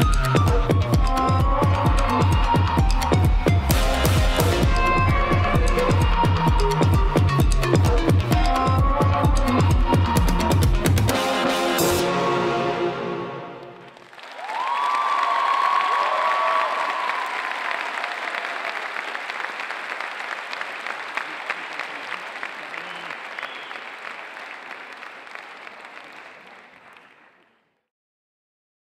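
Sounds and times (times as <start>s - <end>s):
audience applauding: 13.6s - 27.6s.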